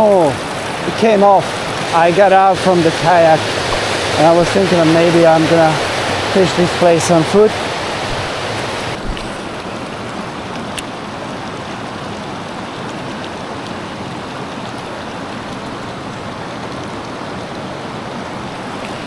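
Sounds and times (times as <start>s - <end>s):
river water rushing over rocks: 0.0s - 19.0s.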